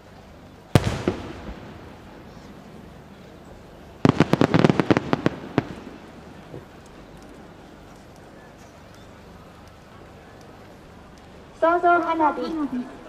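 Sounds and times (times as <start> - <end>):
firework bangs: 0.7 - 3.0, 4.0 - 6.8
firework echo: 0.7 - 7.9.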